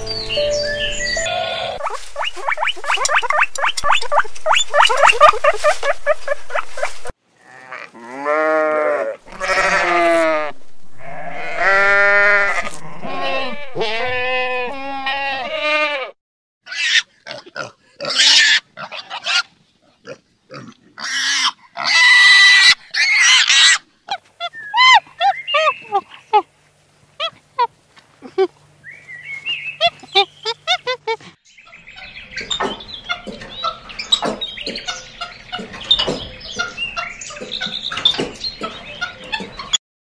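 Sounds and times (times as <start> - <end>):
squirrel chirping: 0.0 - 6.9
piglets squealing and grunting: 1.2 - 26.5, 29.8 - 31.3
sheep bleating: 7.4 - 16.2.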